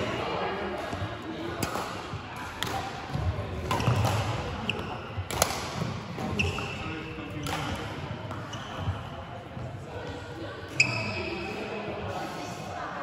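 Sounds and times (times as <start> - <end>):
racket striking shuttlecock: 1.6 - 6.7, 7.4 - 8.5
shoe squeaks: 4.6 - 5.2, 6.2 - 7.6, 8.3 - 9.1, 10.7 - 11.7.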